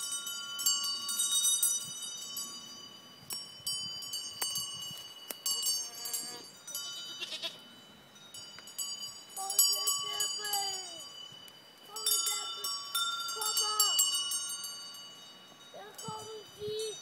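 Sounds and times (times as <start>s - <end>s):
goat bells clanking: 0.0s - 17.0s
goat bleating: 5.7s - 7.6s.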